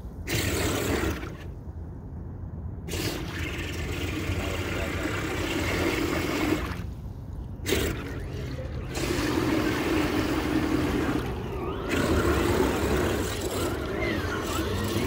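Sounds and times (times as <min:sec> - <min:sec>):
motor whine: 0:08.8 - 0:15.0.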